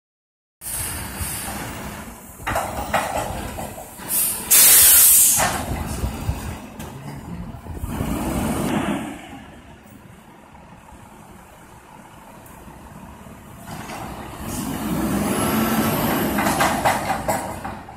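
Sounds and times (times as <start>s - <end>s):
loud air hiss: 0.6s - 2.0s, 4.0s - 5.7s
diesel truck engine running: 0.6s - 17.9s.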